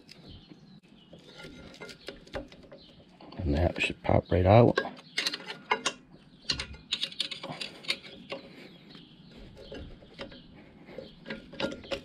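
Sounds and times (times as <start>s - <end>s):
screwdriver clicking and scraping metal: 4.8s - 8.4s.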